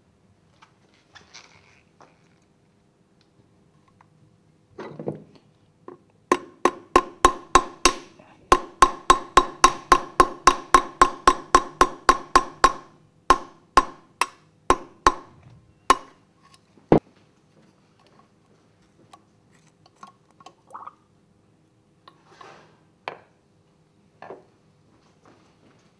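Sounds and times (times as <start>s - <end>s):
hammer tapping metal punch: 6.3s - 16.2s.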